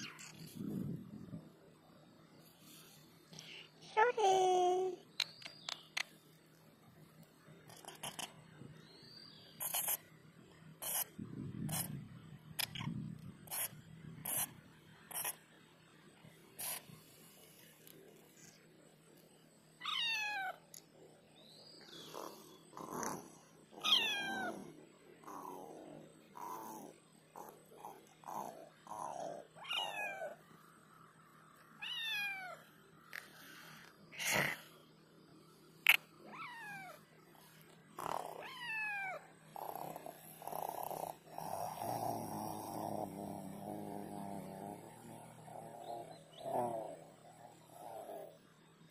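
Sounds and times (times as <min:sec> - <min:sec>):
cat meowing: 0:19.8 - 0:20.6, 0:23.8 - 0:24.6, 0:29.6 - 0:30.4, 0:31.8 - 0:32.6, 0:36.3 - 0:37.0, 0:38.3 - 0:39.2.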